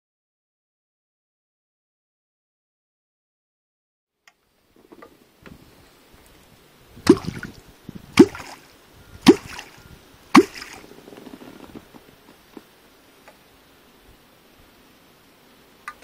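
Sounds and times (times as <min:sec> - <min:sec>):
wooden clonk striking water: 0:07.0 - 0:07.6, 0:08.2 - 0:08.6, 0:09.2 - 0:09.8, 0:10.4 - 0:10.9.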